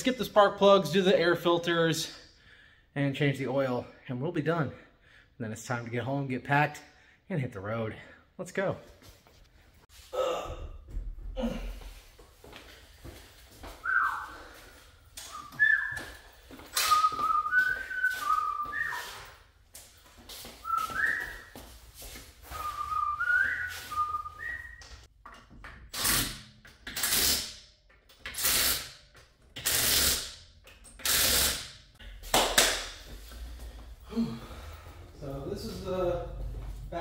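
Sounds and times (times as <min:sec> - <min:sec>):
man whistling: 0:13.8 - 0:19.4, 0:20.6 - 0:21.6, 0:22.5 - 0:25.0.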